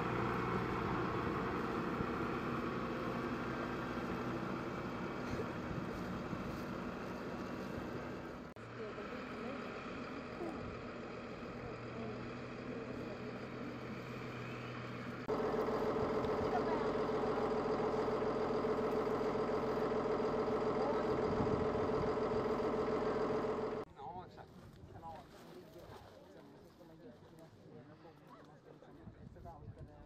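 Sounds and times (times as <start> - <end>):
tractor diesel engine running: 0.0 - 23.9.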